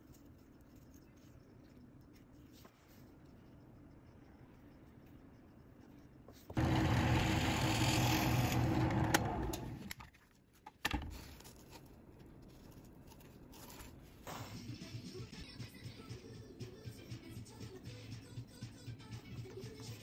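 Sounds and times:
drill press boring wood: 0:06.6 - 0:09.9.

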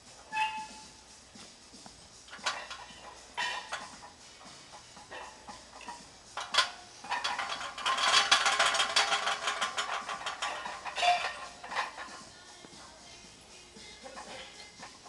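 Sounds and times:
barbell plates rattling: 0:02.3 - 0:12.4, 0:14.0 - 0:15.0.

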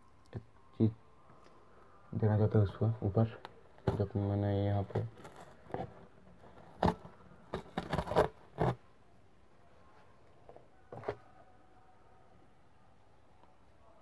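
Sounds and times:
paper crackling rustles: 0:04.9 - 0:08.8.

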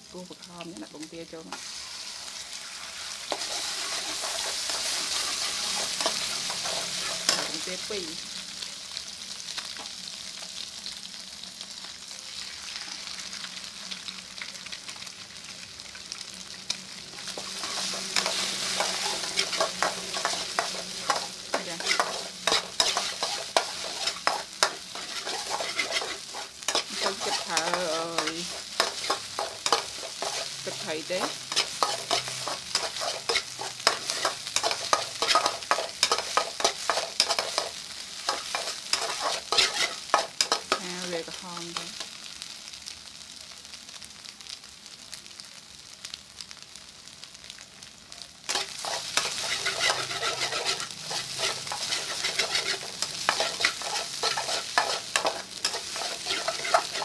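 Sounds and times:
egg sizzling in oil: 0:00.0 - 0:57.0
metal ladle scraping wok: 0:03.3 - 0:07.7, 0:17.2 - 0:40.8, 0:48.5 - 0:57.0.

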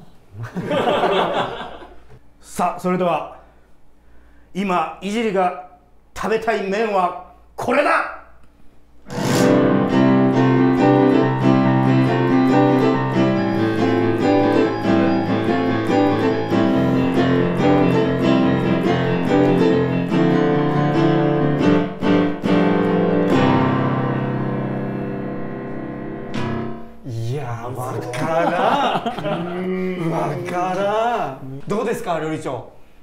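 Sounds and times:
digital piano chords: 0:09.1 - 0:27.0.

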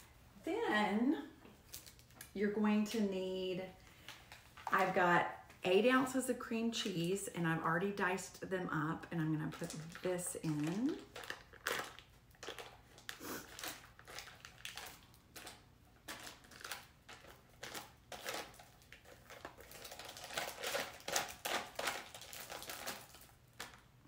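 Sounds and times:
foil wrapper crinkling: 0:01.6 - 0:02.4, 0:09.4 - 0:24.0.

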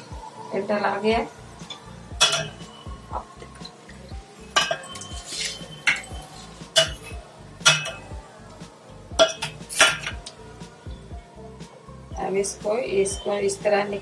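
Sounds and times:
utensil scraping a metal pot: 0:04.4 - 0:08.1, 0:09.2 - 0:10.2.

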